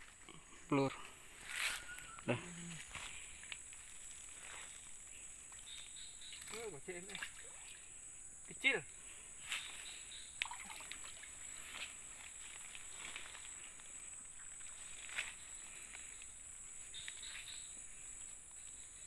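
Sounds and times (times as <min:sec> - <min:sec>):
high-pitched insect chorus: 0:00.0 - 0:19.0
water splashes: 0:06.4 - 0:07.9, 0:10.4 - 0:11.8.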